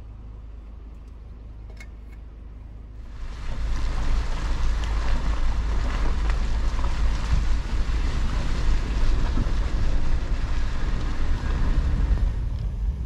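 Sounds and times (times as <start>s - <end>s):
vehicle low hum: 0.0s - 13.0s
wind buffeting microphone: 3.0s - 13.0s.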